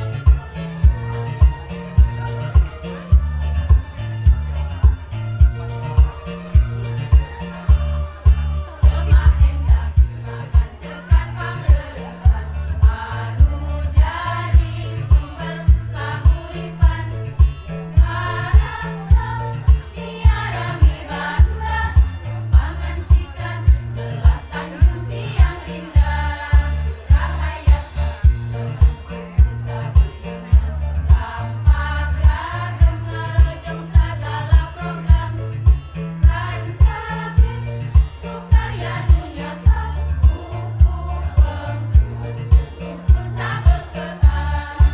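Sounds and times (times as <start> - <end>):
bass notes: 0.0 - 44.9
steady low beat: 0.0 - 44.9
women's choir singing: 6.0 - 44.9.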